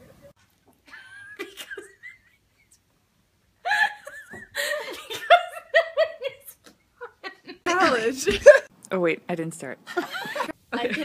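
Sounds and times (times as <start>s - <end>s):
people laughing: 9.9s - 11.0s.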